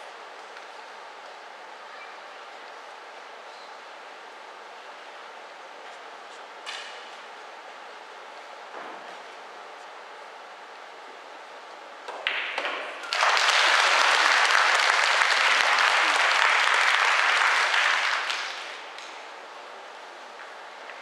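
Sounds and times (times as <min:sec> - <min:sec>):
audience applause: 0:13.0 - 0:19.1.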